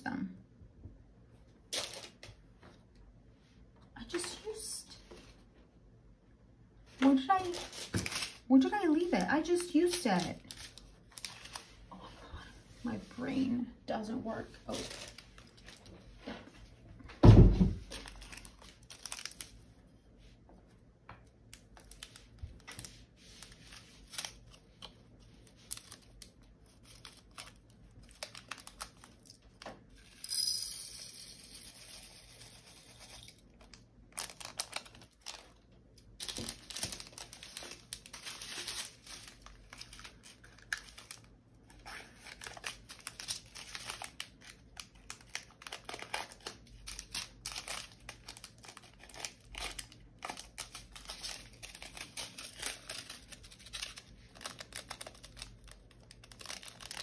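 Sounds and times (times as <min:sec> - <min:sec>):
plastic baggies crinkling and tearing: 0:01.7 - 0:02.3, 0:07.0 - 0:11.8, 0:14.6 - 0:16.1, 0:17.8 - 0:19.7, 0:21.4 - 0:29.6, 0:33.4 - 0:57.0.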